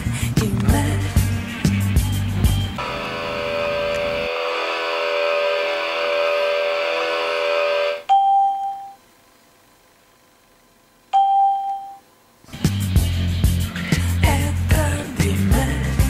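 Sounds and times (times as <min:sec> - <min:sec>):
sustained music chord: 0:02.7 - 0:08.0
electronic chime ding: 0:08.1 - 0:09.0, 0:11.2 - 0:12.0.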